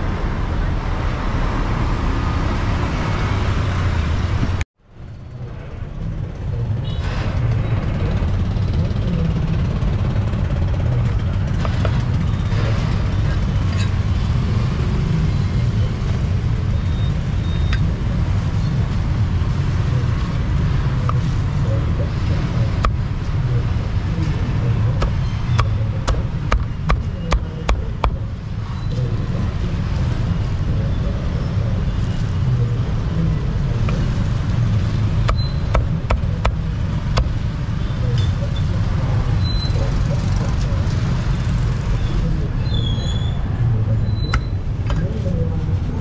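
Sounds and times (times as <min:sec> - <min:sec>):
street traffic rumble: 0:00.0 - 0:46.0
cleaver chopping on wooden block: 0:25.0 - 0:28.2, 0:35.2 - 0:37.4.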